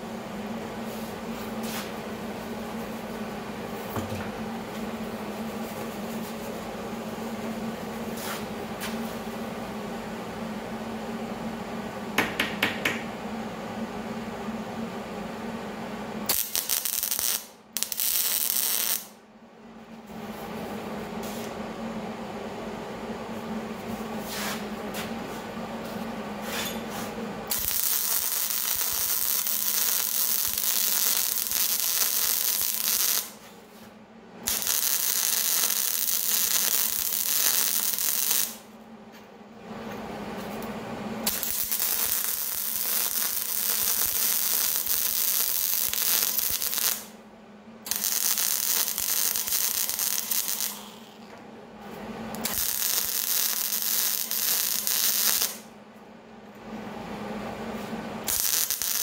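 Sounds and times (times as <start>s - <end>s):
welding arc crackling: 16.3s - 19.2s, 27.5s - 33.5s, 34.4s - 38.7s, 41.2s - 47.2s, 47.9s - 51.3s, 52.3s - 55.7s, 58.2s - 59.0s.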